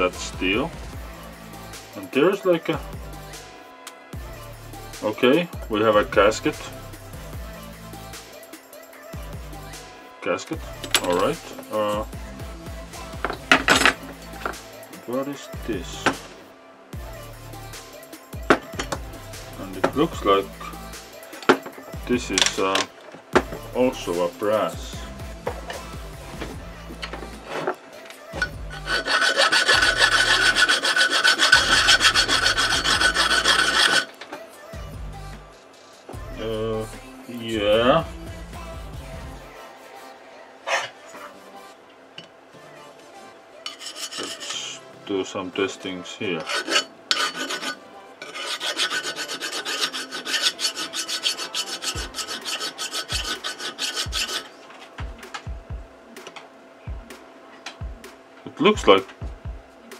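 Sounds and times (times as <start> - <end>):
hand file rasping on metal: 10.8 - 11.7, 18.5 - 21.7, 28.4 - 34.2, 43.7 - 44.8, 46.3 - 54.5.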